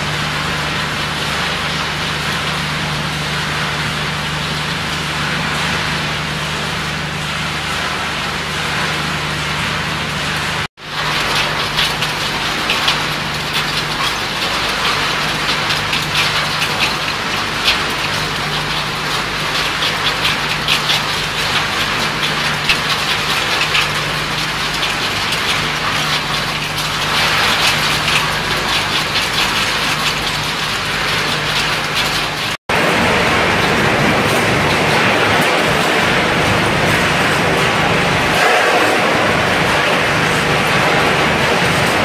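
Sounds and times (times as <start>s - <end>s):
machinery humming: 0.0s - 42.0s
metal pieces clattering on chute: 10.9s - 42.0s.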